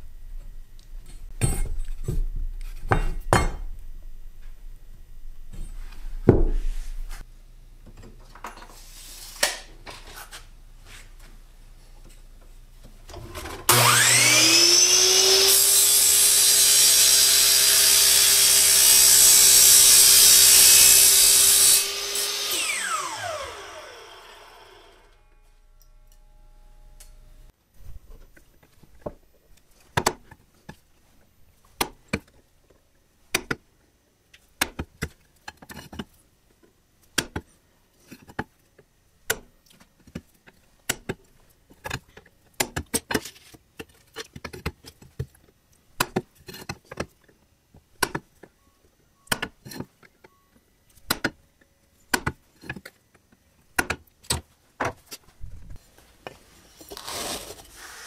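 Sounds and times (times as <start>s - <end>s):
miter saw motor whine: 13.7s - 25.4s
saw blade cutting metal: 13.7s - 25.5s.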